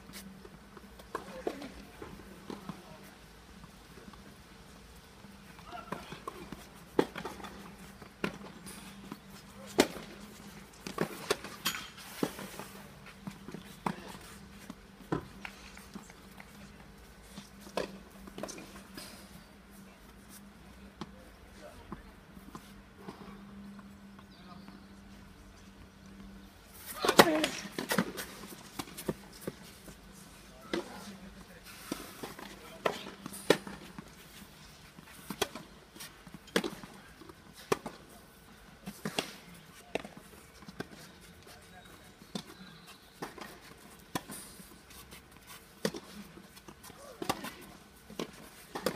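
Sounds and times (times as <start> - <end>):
tennis balls bouncing and struck: 5.2 - 19.3, 25.6 - 30.0, 31.8 - 48.9.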